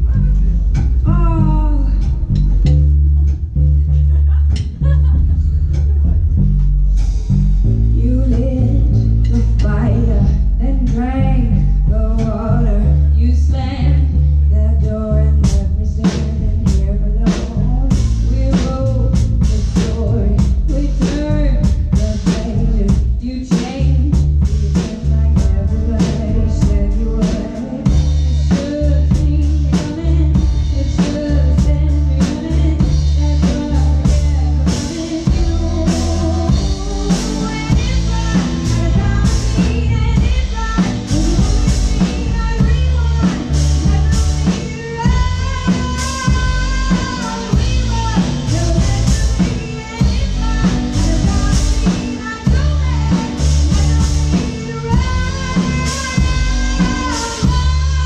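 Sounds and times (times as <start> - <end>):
woman singing: 0.0 - 3.4, 7.9 - 58.0
drum kit beat: 0.0 - 14.2, 14.8 - 58.0
upright bass: 0.0 - 58.0.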